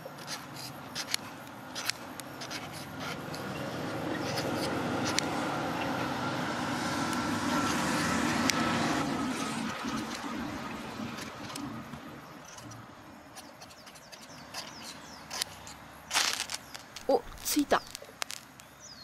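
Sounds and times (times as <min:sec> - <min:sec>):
file rasping on fire-starter rod: 0:00.2 - 0:05.3, 0:13.4 - 0:16.5.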